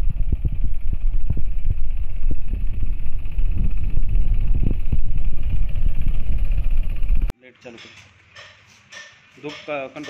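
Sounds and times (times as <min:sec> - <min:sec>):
tractor engine running: 0:00.0 - 0:07.3.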